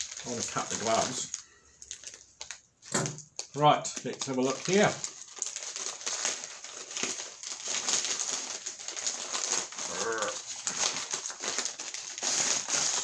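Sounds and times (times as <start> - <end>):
plastic bag crinkling and tearing: 0.0 - 13.0
person grunting: 9.8 - 10.4.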